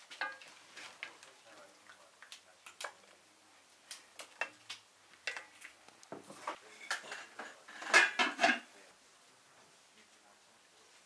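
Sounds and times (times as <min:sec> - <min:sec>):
wooden spoon scraping metal pot: 0:05.2 - 0:08.7
pot lid clattering: 0:06.9 - 0:08.7.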